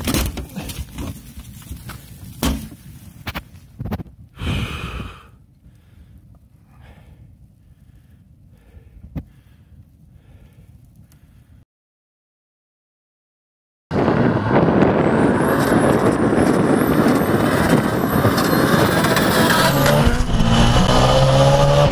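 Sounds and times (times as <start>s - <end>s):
car fire rushing flames: 13.9s - 21.4s.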